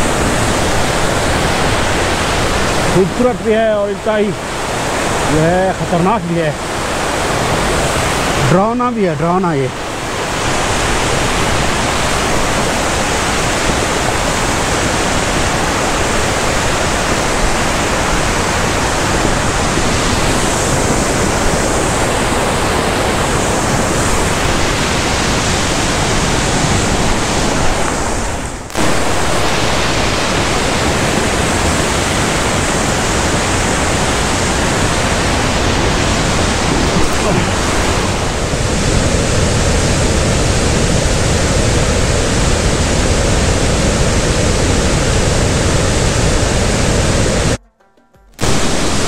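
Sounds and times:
stream torrent rushing: 0.0s - 47.6s, 48.4s - 49.0s.

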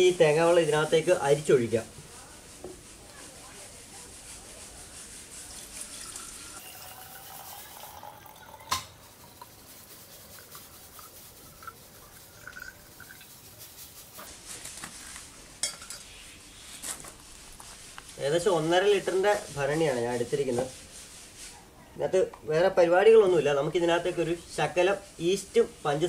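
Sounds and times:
dripping: 5.3s - 14.3s
liquid trickling into a glass jar: 5.5s - 9.6s, 10.3s - 13.4s.

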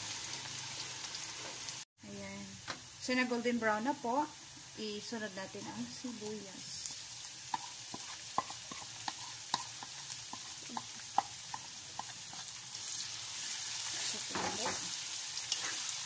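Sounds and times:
onions sizzling in hot oil: 0.0s - 16.0s.

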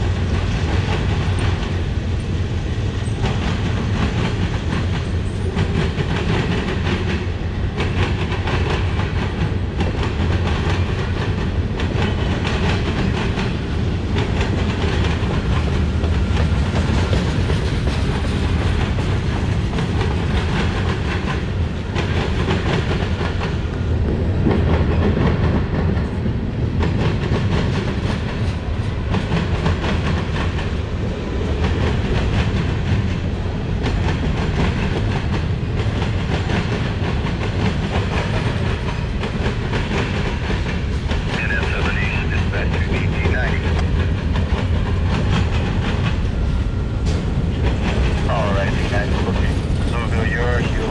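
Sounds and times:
steel wheels rumbling on rail: 0.0s - 50.9s.

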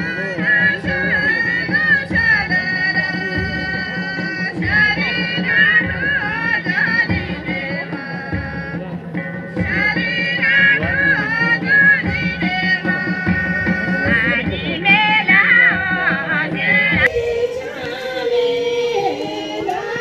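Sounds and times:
drum beat: 0.0s - 20.0s
voices: 0.0s - 20.0s
wind instruments wavering melody: 17.0s - 20.0s.

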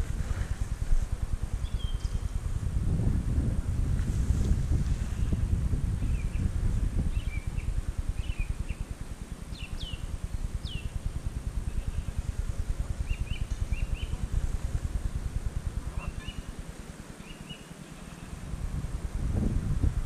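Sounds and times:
small birds chirping: 1.5s - 2.4s, 5.0s - 8.9s, 9.5s - 14.4s, 15.9s - 16.6s, 17.2s - 18.5s.

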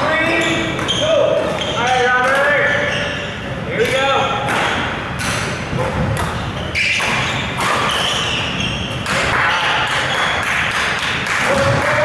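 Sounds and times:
racket striking shuttlecock: 3.8s - 8.2s.

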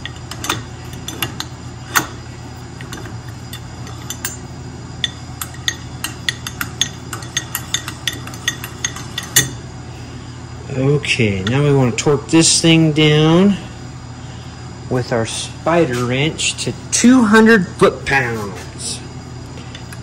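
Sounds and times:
steady low hum: 0.0s - 20.0s
metal clutch parts clinking: 2.8s - 9.6s.

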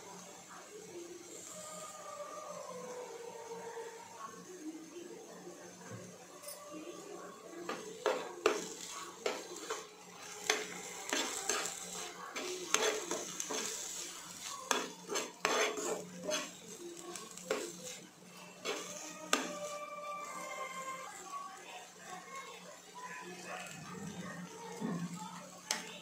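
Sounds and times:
light sizzle of frying: 0.0s - 26.0s
spoon scraping frying pan: 7.6s - 21.0s.

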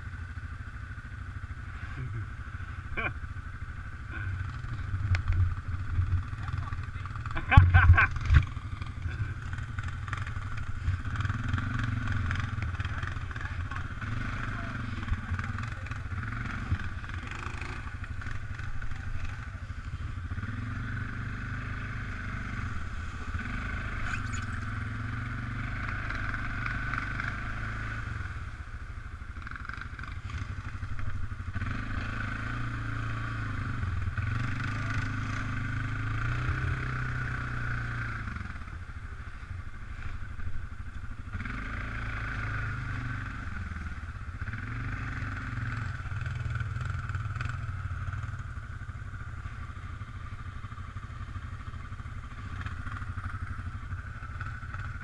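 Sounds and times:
atv engine revving: 0.0s - 55.0s
high whine: 22.5s - 25.0s.

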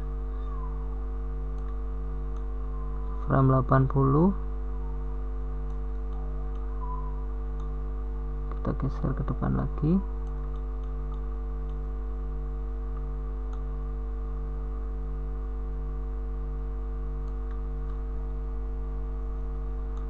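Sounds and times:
electrical mains hum: 0.0s - 20.0s
computer mouse clicks: 1.5s - 2.5s, 5.6s - 7.8s, 10.2s - 11.9s, 12.9s - 13.7s, 17.2s - 18.0s.

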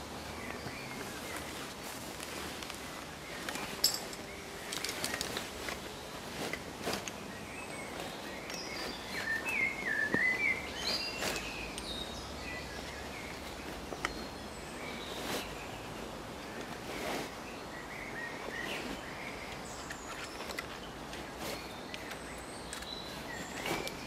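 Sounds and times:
small bird singing: 7.1s - 24.0s.

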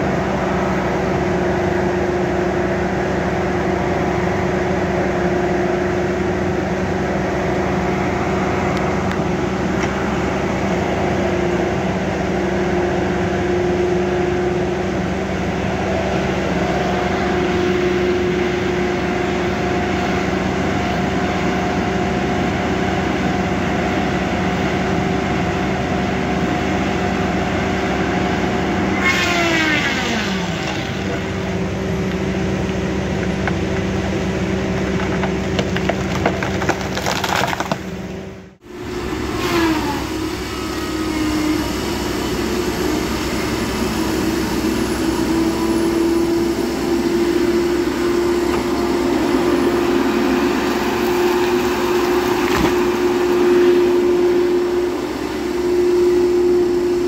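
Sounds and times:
diesel engine hum and whine: 0.0s - 57.0s
saw cutting into tree trunk: 28.9s - 31.6s, 38.8s - 56.4s.

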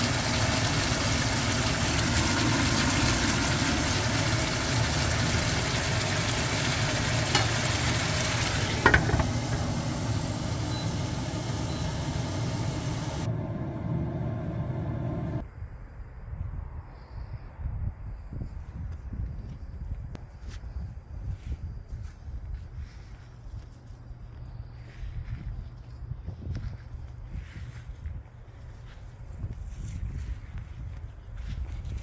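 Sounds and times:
meat and onions sizzling in pan: 0.0s - 13.3s.

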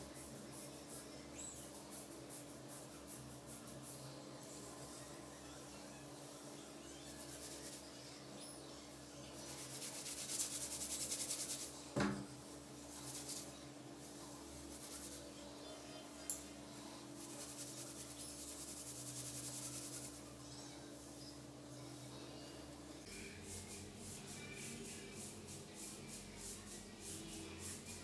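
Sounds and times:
fingers rubbing through oiled hair: 7.1s - 8.0s, 9.4s - 11.8s, 12.8s - 15.4s, 17.2s - 20.4s.

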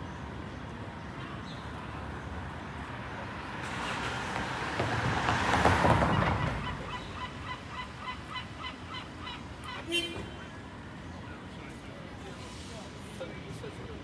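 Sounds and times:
vehicle passing by: 2.8s - 7.6s.

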